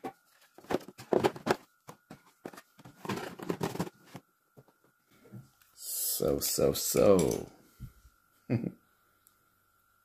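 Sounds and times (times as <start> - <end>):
packaging rustling and crinkling: 0.0 - 4.3.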